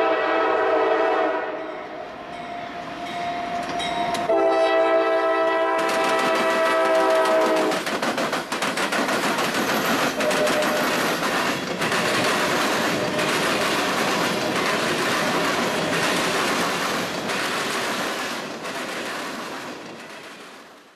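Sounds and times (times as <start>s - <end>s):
locomotive horn: 0.0s - 2.0s, 4.2s - 7.8s, 10.2s - 11.0s
wheels clicking over track: 5.8s - 20.7s.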